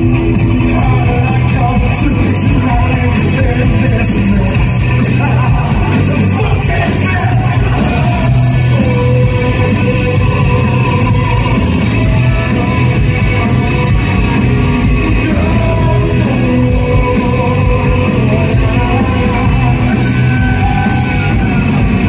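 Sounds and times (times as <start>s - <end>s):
bass guitar: 0.0s - 22.0s
drums: 0.0s - 22.0s
electric guitars: 0.0s - 22.0s
man singing: 0.0s - 22.0s.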